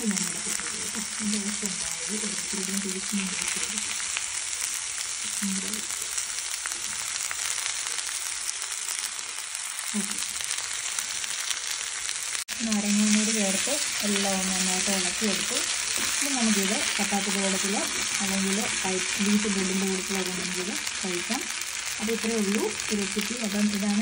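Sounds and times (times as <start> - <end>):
food sizzling in a frying pan: 0.0 - 24.0
utensil stirring a pan: 9.7 - 24.0.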